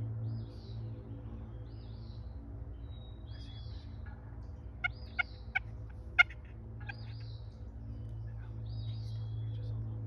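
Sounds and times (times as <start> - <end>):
faint songbirds singing: 0.0 - 10.0
wild turkey calling: 4.8 - 7.2.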